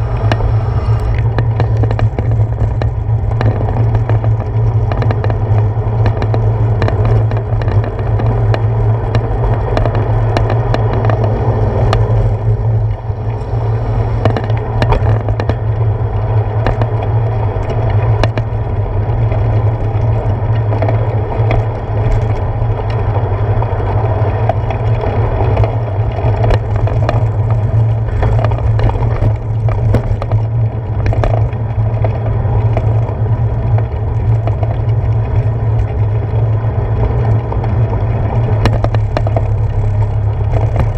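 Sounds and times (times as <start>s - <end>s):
bike clicks and knocks: 0.0s - 40.9s
tyres rolling on asphalt: 0.0s - 40.9s
wind: 0.0s - 40.9s.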